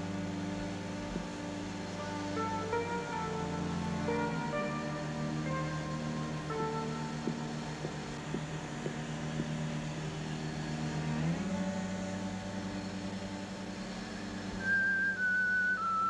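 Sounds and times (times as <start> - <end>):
low drone of sustained tones: 0.0 - 16.0.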